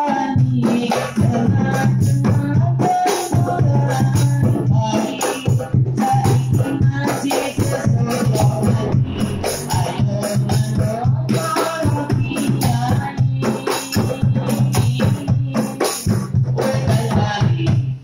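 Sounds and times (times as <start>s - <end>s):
deep bass drum: 7.6s - 11.3s.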